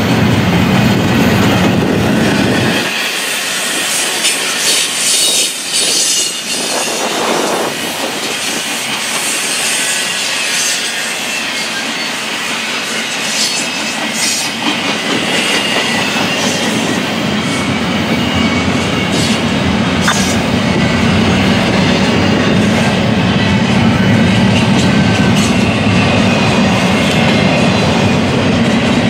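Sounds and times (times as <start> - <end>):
train wheels rushing on rail: 0.0 - 29.0.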